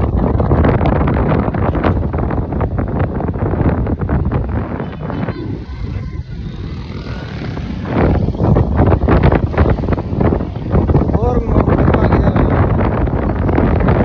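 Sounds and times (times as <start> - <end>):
motorcycle street traffic: 0.0 - 14.0
wind buffeting microphone: 0.0 - 14.0.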